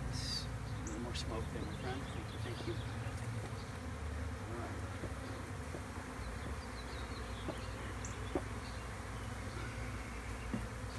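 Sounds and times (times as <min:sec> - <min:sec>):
bees humming: 0:00.0 - 0:10.9.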